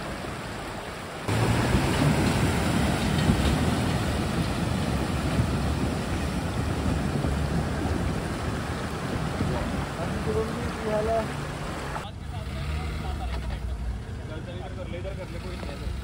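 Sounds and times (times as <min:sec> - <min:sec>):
river flowing: 0:00.0 - 0:16.0
water splashing against vehicle: 0:00.0 - 0:16.0.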